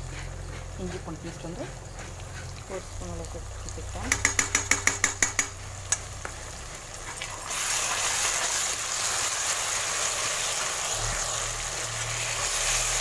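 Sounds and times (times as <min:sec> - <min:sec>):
masala sizzling in a pan: 0:00.0 - 0:13.0
spoon tapping on a pan: 0:04.0 - 0:06.4.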